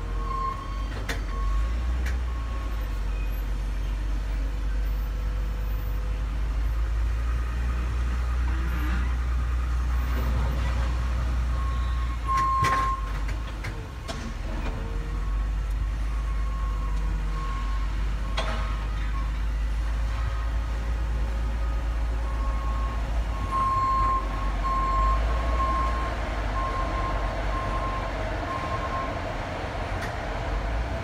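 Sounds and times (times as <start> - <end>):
heavy machinery engine rumbling: 0.0 - 31.0.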